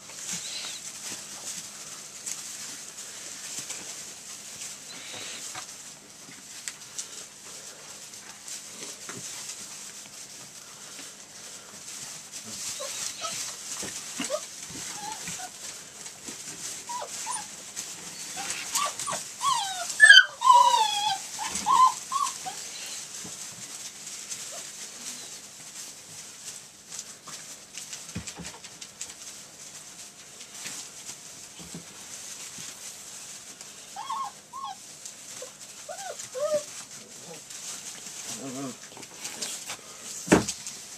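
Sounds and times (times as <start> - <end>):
rustle of wood shavings: 0.0 - 40.9
faint puppy growl: 35.4 - 39.9.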